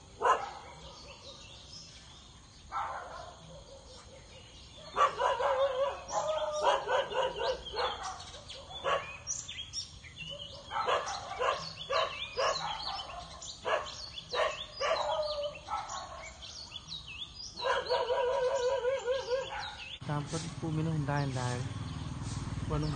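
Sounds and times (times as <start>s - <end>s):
dogs barking: 0.0s - 1.7s, 2.7s - 16.7s, 17.5s - 20.0s
small birds chirping: 0.0s - 22.9s.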